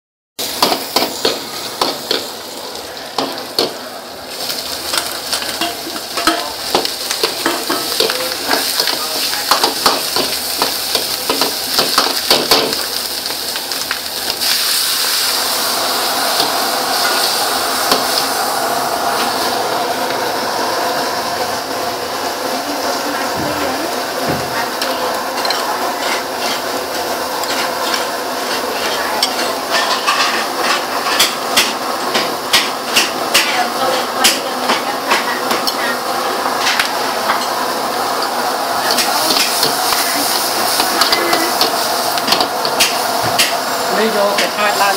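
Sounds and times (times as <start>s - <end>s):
food sizzling in hot oil: 0.4s - 44.9s
metal ladle scraping a wok: 24.8s - 26.8s, 27.4s - 31.4s.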